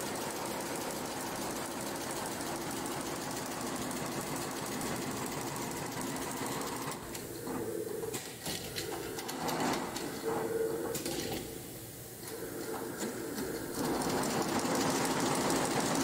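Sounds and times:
sharp machine clicks: 0.0 - 7.3, 12.2 - 16.0.

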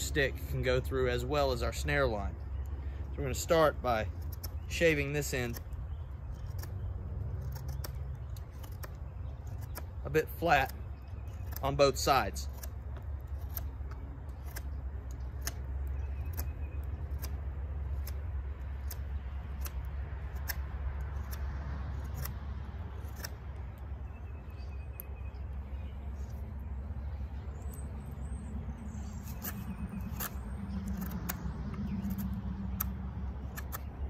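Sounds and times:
knife shaving wood: 3.2 - 23.8, 29.0 - 33.9
low rumble: 16.8 - 34.0.

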